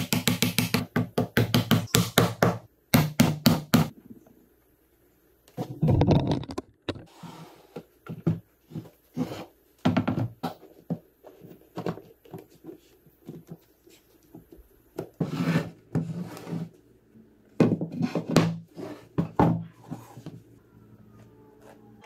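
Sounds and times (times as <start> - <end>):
wooden boards knocking and scraping: 5.6 - 7.1.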